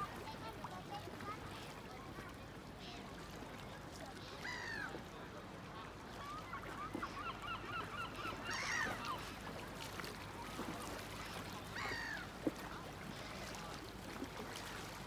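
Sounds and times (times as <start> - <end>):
water birds yelping: 4.1 - 15.0
drawn-out bird calls: 6.3 - 9.4, 11.1 - 12.3.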